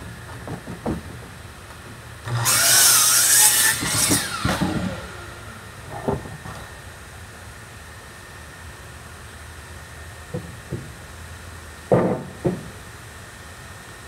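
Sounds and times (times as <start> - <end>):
power saw cutting wood: 2.2 - 6.5.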